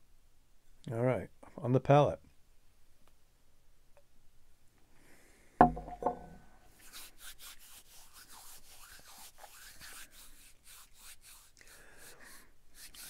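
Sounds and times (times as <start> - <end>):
glass knocking on wooden table: 5.6 - 6.4
palms rubbing together: 6.7 - 13.0.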